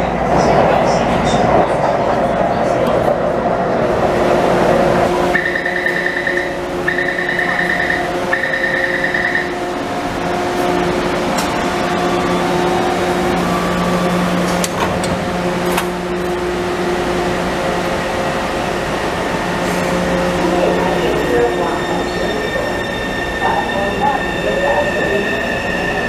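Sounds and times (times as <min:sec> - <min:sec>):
train electrical hum: 0:00.0 - 0:26.0
train doors closing clicks: 0:11.2 - 0:11.8, 0:14.1 - 0:16.4.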